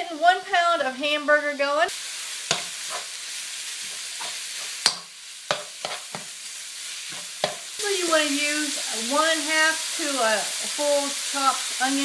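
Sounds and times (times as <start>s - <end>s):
meat sizzling in a skillet: 0.0s - 12.0s
metal spoon scraping a pan: 2.4s - 3.2s, 3.8s - 6.4s, 7.0s - 7.8s.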